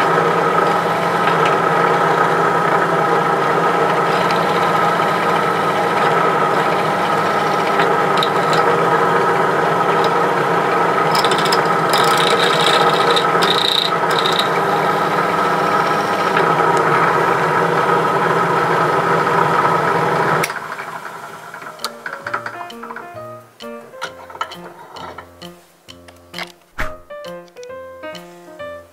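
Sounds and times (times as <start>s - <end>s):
drill press running: 0.0s - 23.1s
drill bit scraping metal: 4.1s - 8.9s, 11.1s - 16.4s.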